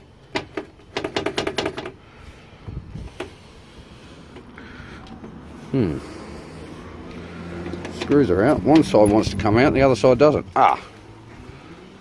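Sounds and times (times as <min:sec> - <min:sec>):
metal case clicks and rattles: 0:00.2 - 0:02.0.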